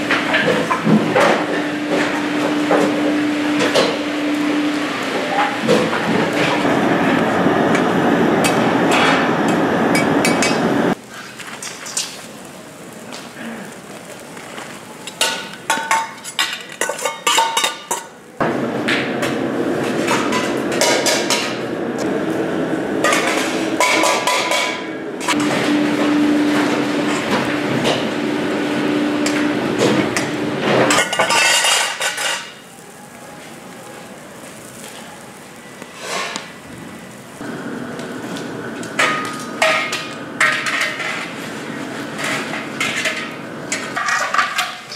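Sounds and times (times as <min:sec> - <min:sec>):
pots and utensils clinking: 0:00.0 - 0:04.2, 0:14.6 - 0:18.2, 0:19.8 - 0:21.6, 0:23.0 - 0:28.2, 0:28.9 - 0:32.8, 0:38.8 - 0:44.9.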